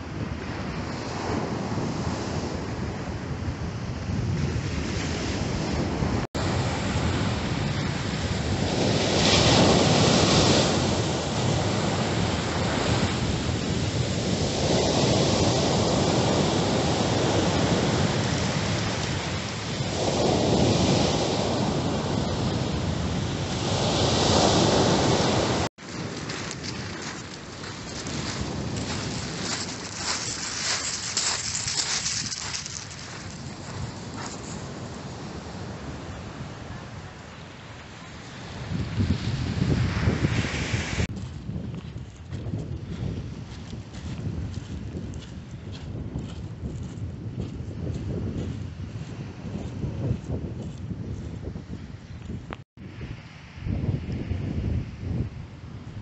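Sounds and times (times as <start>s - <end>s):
wind buffeting microphone: 0.0s - 37.3s, 38.4s - 56.0s
waves breaking on beach: 4.1s - 41.1s.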